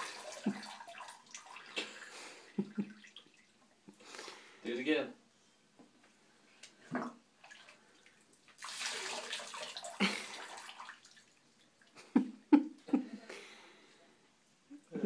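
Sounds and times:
water poured from cup splashing: 0.0s - 2.1s, 6.9s - 11.3s
short water splashes: 0.0s - 2.2s, 6.9s - 11.4s.

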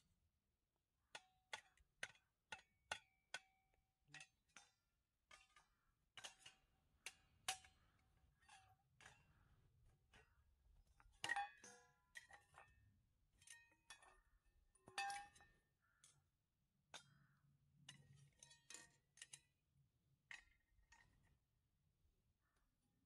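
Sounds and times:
metal stove parts clinking: 11.1s - 12.7s, 14.8s - 15.5s.

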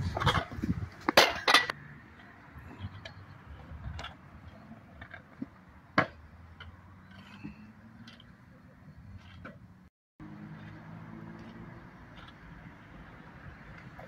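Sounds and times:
scooter clattering on concrete: 0.0s - 8.4s, 10.4s - 12.7s.

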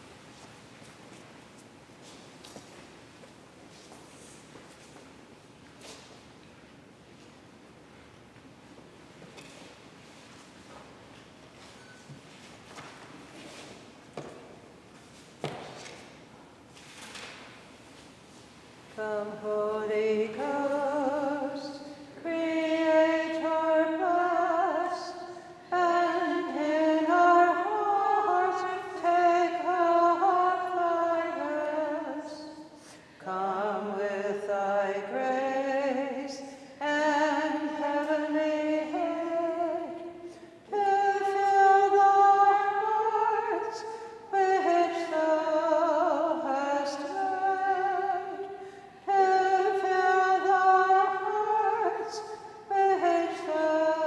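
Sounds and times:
woman singing unaccompanied: 18.9s - 54.0s.

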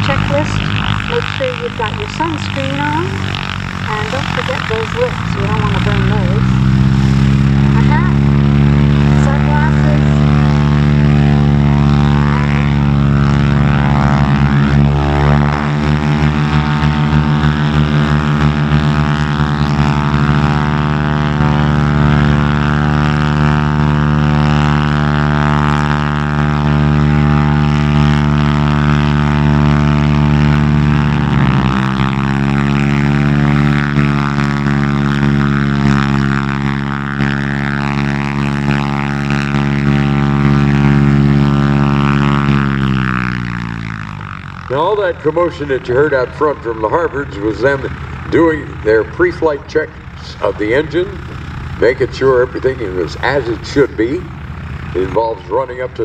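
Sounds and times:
radial aircraft engine running: 0.0s - 56.0s.

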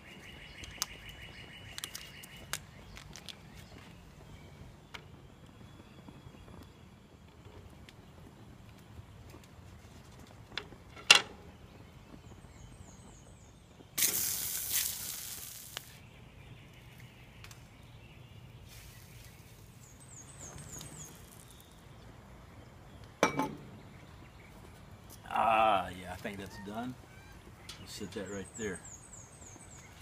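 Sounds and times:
meat sizzling in a skillet: 14.0s - 16.0s.

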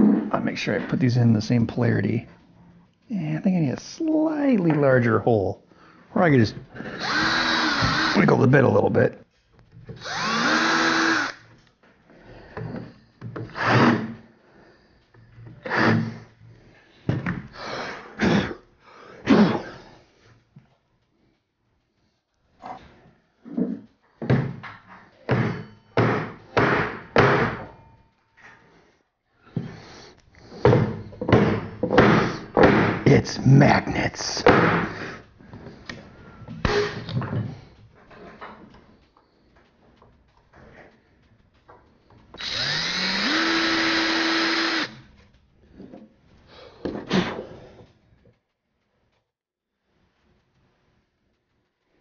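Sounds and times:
cordless drill motor whining: 6.9s - 8.3s, 9.9s - 11.5s, 42.4s - 45.1s.

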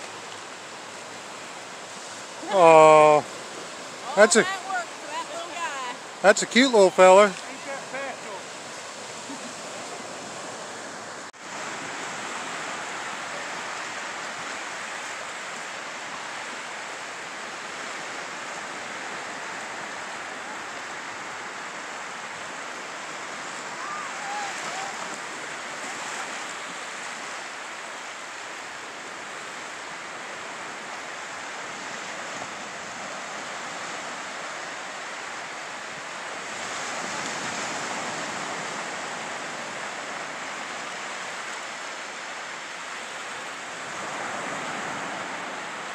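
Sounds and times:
surf waves washing onto beach: 0.0s - 45.9s.

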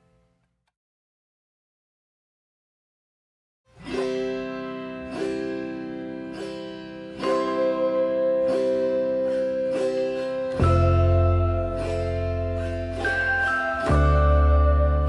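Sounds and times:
plucked-string chords: 3.7s - 15.0s.

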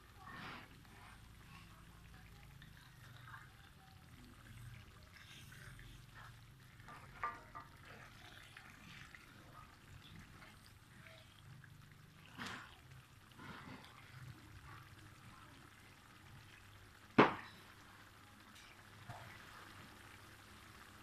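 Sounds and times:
spatula stirring and scraping: 0.0s - 15.6s
chilli paste sizzling in a wok: 0.0s - 21.0s
spatula knocking against pan: 6.9s - 7.9s.

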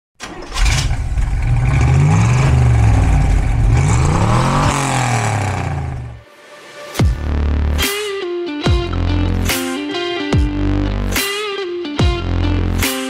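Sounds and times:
car engine revving: 0.3s - 6.2s.

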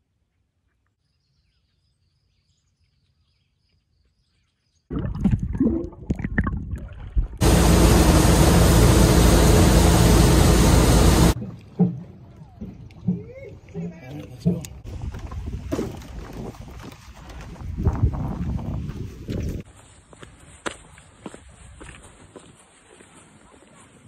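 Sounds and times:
wind: 0.0s - 5.1s, 5.7s - 24.0s
water splashing and bubbling: 4.9s - 7.5s
outboard motor running: 7.4s - 11.4s
rush of boat wake: 7.4s - 11.4s.

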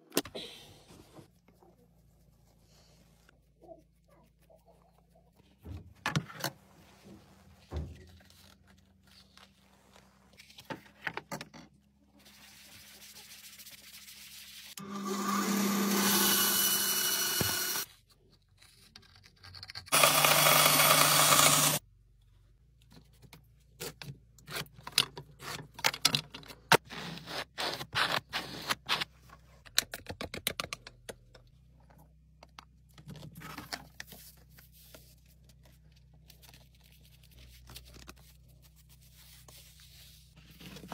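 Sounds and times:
bandsaw cutting wood: 14.8s - 17.8s, 19.9s - 21.8s
power tool running: 14.8s - 17.8s, 19.9s - 21.8s.

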